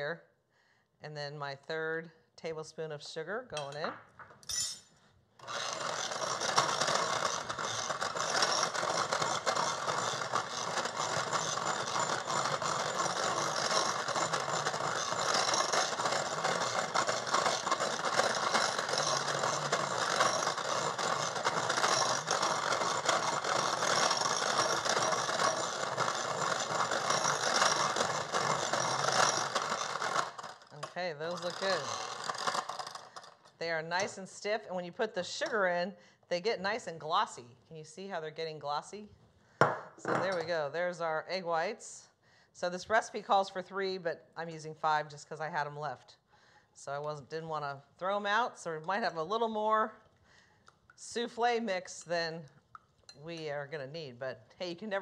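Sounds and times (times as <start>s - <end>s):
electric hand mixer running: 5.4s - 33.3s.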